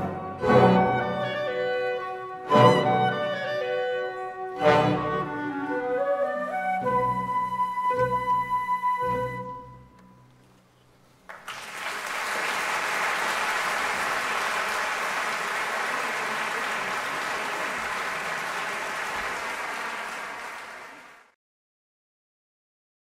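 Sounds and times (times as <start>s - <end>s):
audience applauding: 11.2s - 21.4s.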